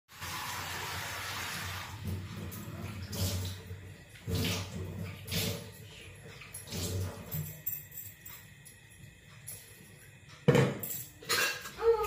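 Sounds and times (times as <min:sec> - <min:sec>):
tap water splashing into steel sink: 0:00.2 - 0:05.7.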